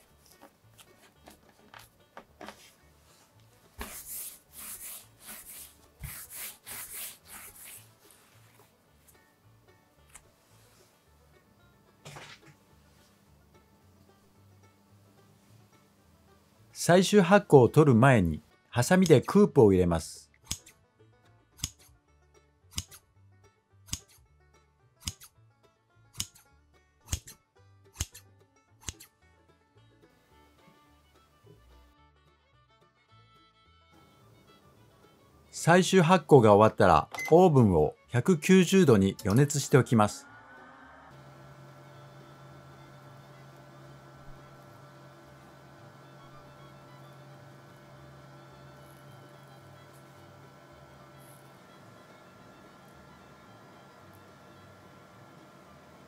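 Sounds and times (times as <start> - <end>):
hands rolling dough: 0.0 - 8.8
faint background music: 0.0 - 56.0
scissors snipping dough: 20.5 - 20.7, 21.6 - 21.9, 23.9 - 24.2, 26.2 - 26.4, 27.1 - 28.2, 28.8 - 29.1.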